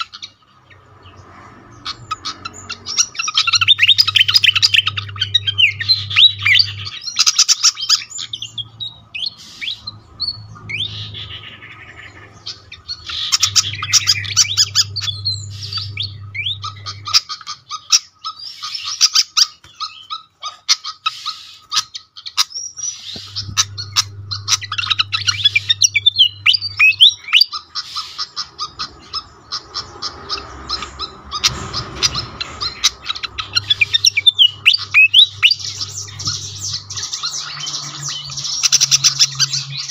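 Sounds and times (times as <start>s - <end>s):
bird singing squeaky chirps: 0.0s - 39.9s
low hum: 0.9s - 7.3s, 8.0s - 17.5s, 22.8s - 27.6s, 28.5s - 39.9s.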